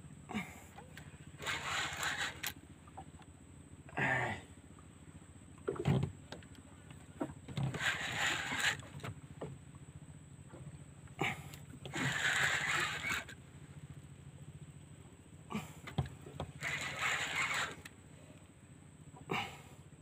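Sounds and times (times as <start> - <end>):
fishing reel gears whirring: 0.8 - 3.0, 7.5 - 9.2, 11.2 - 13.5, 15.9 - 18.0.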